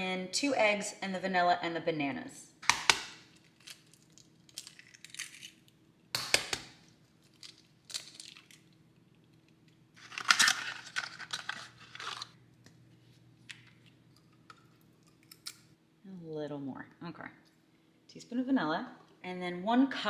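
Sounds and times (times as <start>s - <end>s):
eggs cracking: 2.6s - 12.7s, 13.4s - 15.7s
eggshell crunching and rustling: 3.4s - 5.8s, 7.1s - 12.4s.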